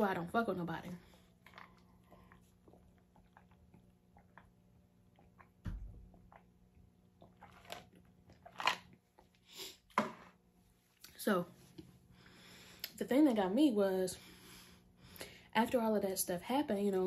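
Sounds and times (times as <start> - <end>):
swallowing and mouth sounds: 1.3 - 9.3.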